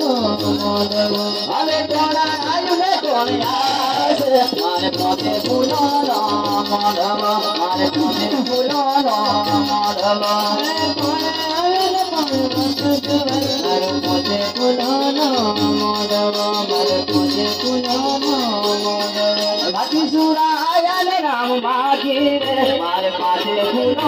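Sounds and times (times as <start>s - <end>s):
fast high percussion beat: 0.0s - 24.0s.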